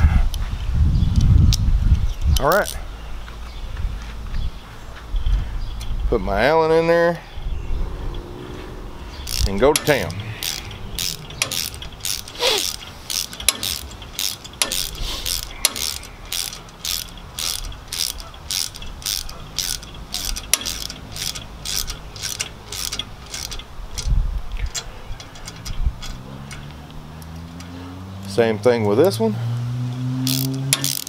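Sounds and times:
ratcheting wrench clicking: 0:01.2 - 0:02.8, 0:09.2 - 0:29.2, 0:29.9 - 0:31.0
low thumps: 0:03.2 - 0:19.1.

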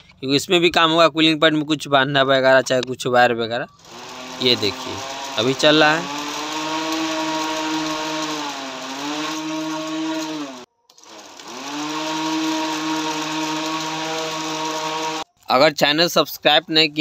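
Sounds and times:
fan motor whining: 0:03.8 - 0:15.2.

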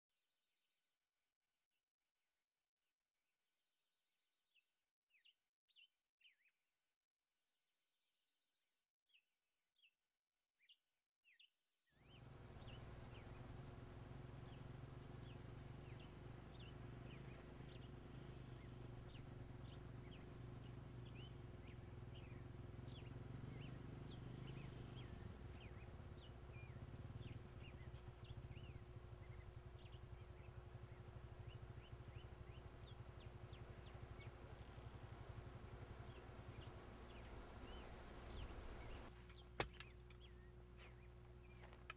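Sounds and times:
bird chirps: 0:10.6 - 0:41.9
low hum and hiss: 0:12.1 - 0:41.9.

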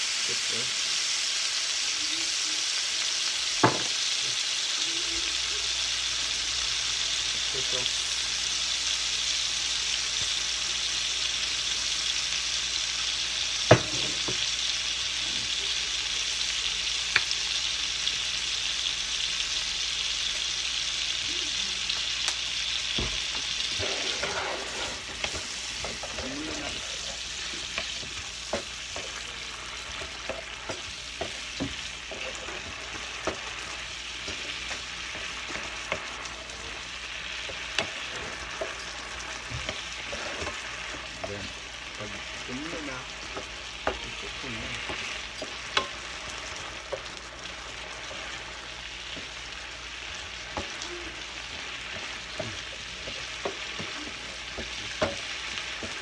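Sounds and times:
shrimp sizzling in hot oil: 0:00.0 - 0:56.0
wooden spatula tapping and scraping pan: 0:23.0 - 0:36.3, 0:37.4 - 0:41.3, 0:43.2 - 0:48.5, 0:50.4 - 0:56.0.

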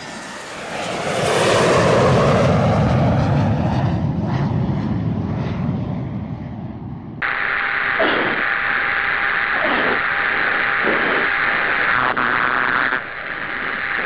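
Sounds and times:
jet aircraft passing: 0:00.0 - 0:11.2.

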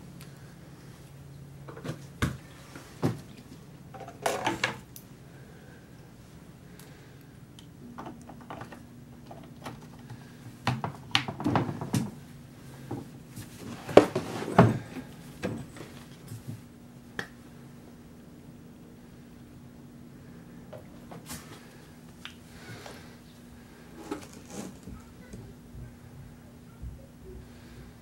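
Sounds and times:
plastic parts clicking and clattering: 0:03.9 - 0:04.8.

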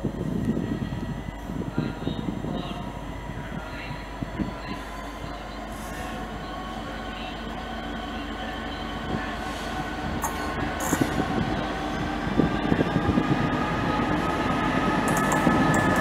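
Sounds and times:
diesel locomotive engine running: 0:00.0 - 0:16.0
train wheels clicking over rail joints: 0:15.0 - 0:16.0.

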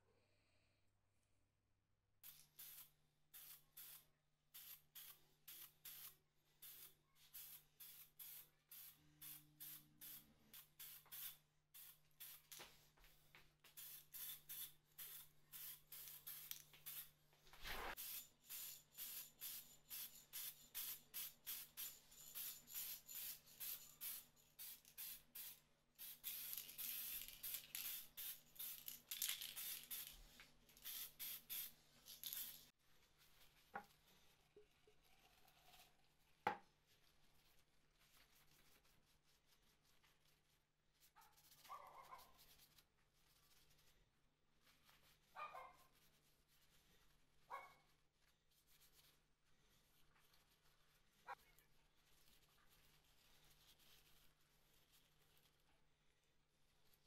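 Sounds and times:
spray can hissing: 0:02.2 - 0:12.6, 0:13.6 - 0:32.7.

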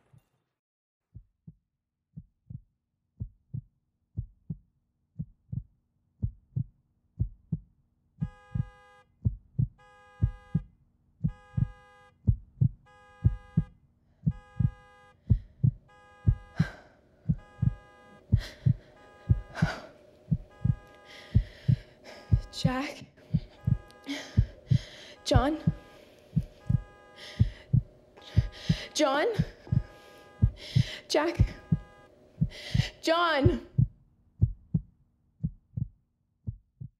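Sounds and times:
heartbeat thumping: 0:02.2 - 0:04.6, 0:05.2 - 0:36.9
faint steady hum: 0:14.2 - 0:33.9.

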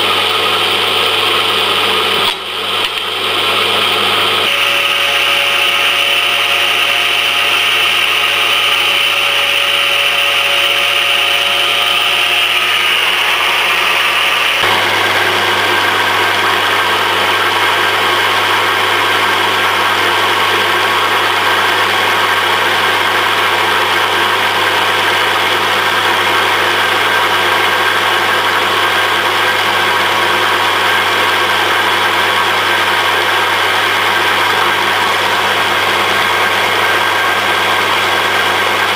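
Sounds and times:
motor-driven shaft spinning: 0:00.0 - 0:38.9.

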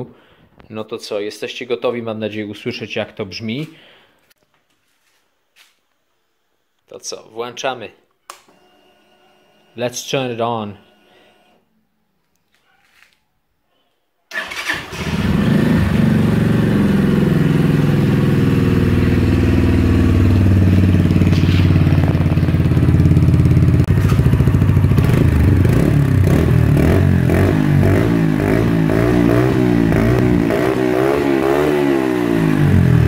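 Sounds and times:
motorcycle engine starting and idling: 0:14.3 - 0:33.0.

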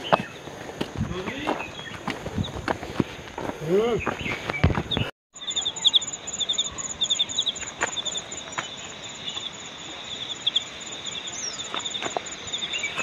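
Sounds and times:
steady outdoor hiss: 0:00.0 - 0:04.8, 0:05.4 - 0:13.0
footsteps on a trail: 0:00.0 - 0:05.1, 0:07.4 - 0:09.5, 0:10.9 - 0:13.0
insects chirping: 0:00.0 - 0:13.0.

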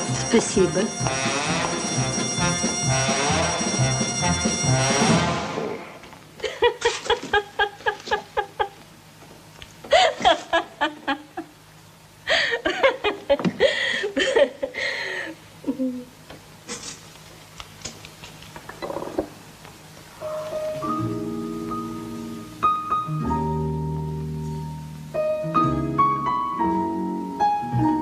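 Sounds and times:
person laughing: 0:06.4 - 0:08.8, 0:09.9 - 0:11.6, 0:12.3 - 0:15.0, 0:15.6 - 0:16.1.

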